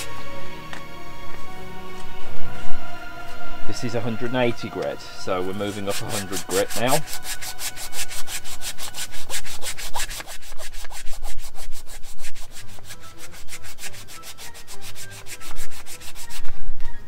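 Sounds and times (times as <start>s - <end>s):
sandpaper strokes: 0.0s - 0.4s, 5.2s - 16.6s.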